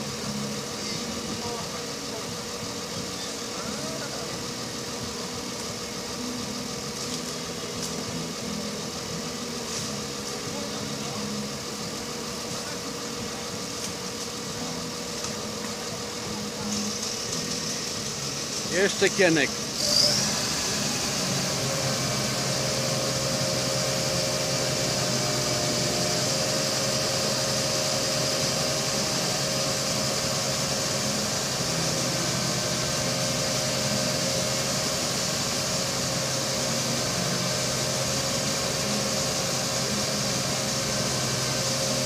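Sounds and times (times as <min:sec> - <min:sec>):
diesel engine running steadily: 0:00.0 - 0:42.0.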